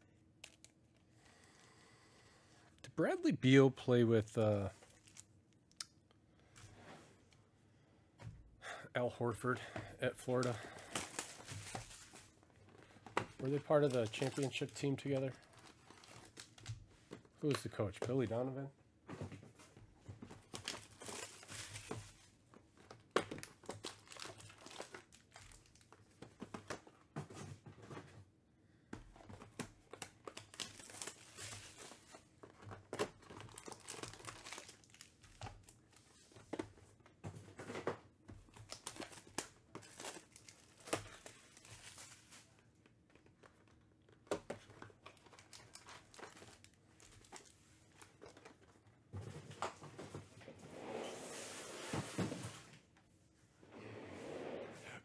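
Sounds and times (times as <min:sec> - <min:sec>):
foil wrappers crinkling: 0:04.7 - 0:05.3, 0:10.2 - 0:16.8, 0:20.5 - 0:22.2, 0:23.4 - 0:26.0, 0:29.9 - 0:36.2, 0:38.5 - 0:43.8, 0:44.7 - 0:48.7.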